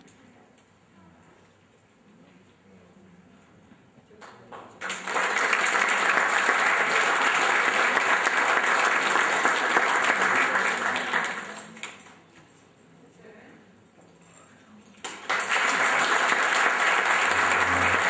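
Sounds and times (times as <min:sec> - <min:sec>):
audience applauding: 0:04.8 - 0:12.0, 0:15.0 - 0:18.0.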